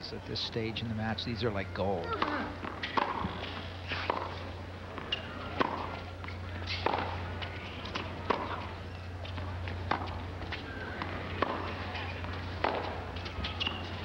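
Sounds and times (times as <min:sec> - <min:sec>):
racket hitting tennis ball: 0:02.1 - 0:07.2, 0:07.8 - 0:08.6, 0:09.8 - 0:10.2, 0:11.0 - 0:11.8, 0:12.6 - 0:13.8.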